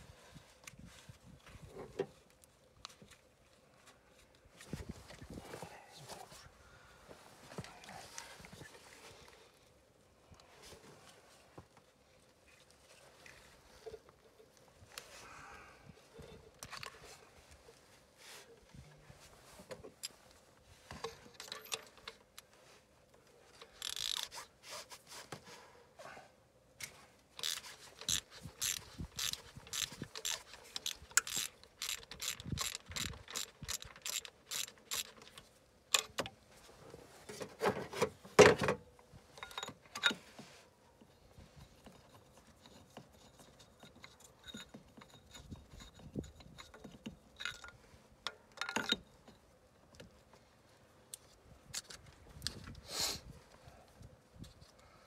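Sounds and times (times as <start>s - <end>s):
ratchet wrench clicking: 23.8s - 24.3s, 27.4s - 35.2s.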